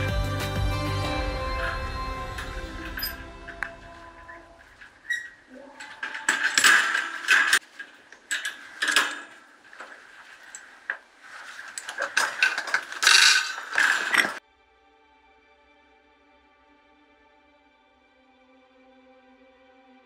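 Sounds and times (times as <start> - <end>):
metal wire rattling and scraping: 2.8 - 14.4.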